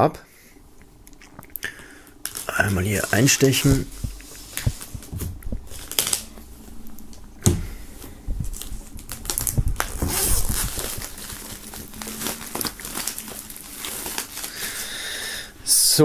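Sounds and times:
plastic film crinkling and rustling: 2.2s - 7.2s, 7.9s - 15.2s.

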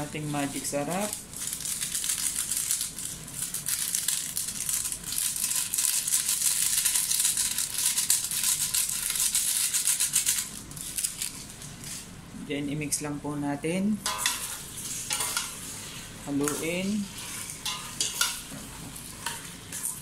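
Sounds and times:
seasoning granules pattering: 0.0s - 11.6s
plastic sachet crinkling: 0.6s - 11.6s.

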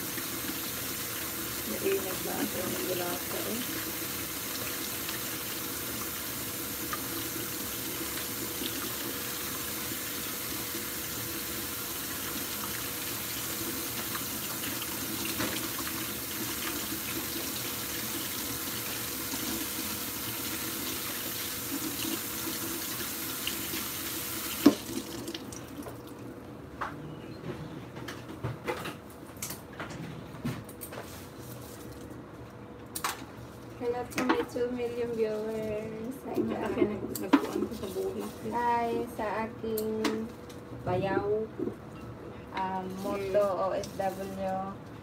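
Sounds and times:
tap running into sink: 13.9s - 17.4s, 24.4s - 26.0s.

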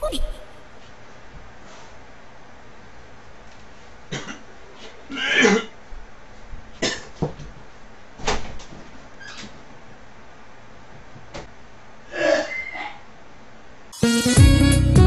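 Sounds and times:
person coughing and clearing throat: 4.1s - 4.5s, 5.1s - 5.7s, 6.8s - 7.1s.

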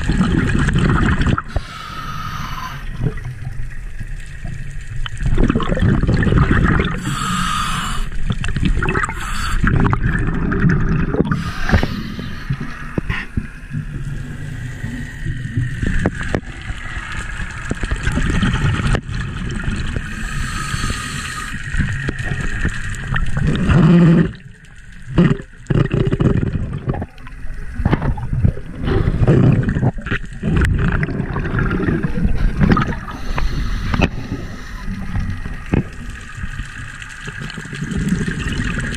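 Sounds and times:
small crackles: 0.0s - 7.3s, 8.1s - 38.9s
underwater bubbling rumble: 0.0s - 38.9s.

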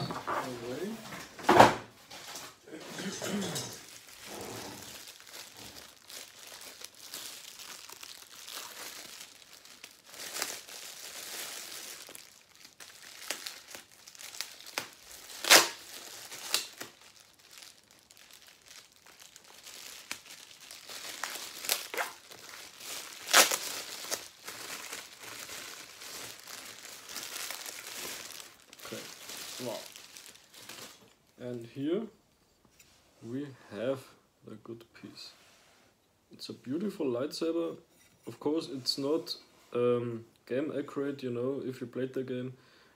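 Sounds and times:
plastic wrap and paper crinkling: 0.0s - 1.4s, 2.0s - 31.4s
paper ripping: 13.2s - 17.0s, 18.6s - 31.0s.

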